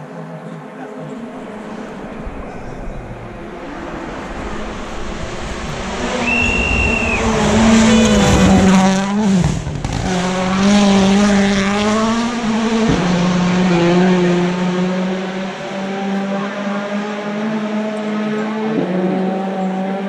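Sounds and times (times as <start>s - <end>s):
car engine at high revs: 1.0s - 20.0s
short high whistle: 6.2s - 7.4s.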